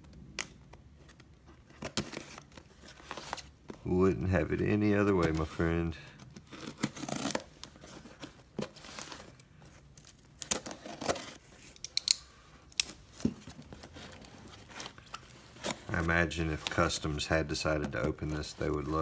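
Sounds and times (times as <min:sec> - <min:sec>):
tape and cardboard ripping: 0:06.2 - 0:09.4, 0:10.0 - 0:16.8
knife slitting packing tape: 0:06.4 - 0:07.5.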